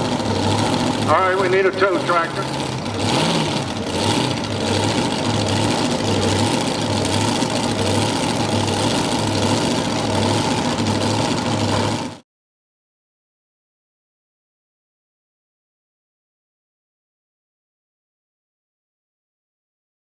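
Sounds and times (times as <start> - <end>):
tractor engines idling: 0.0 - 12.2.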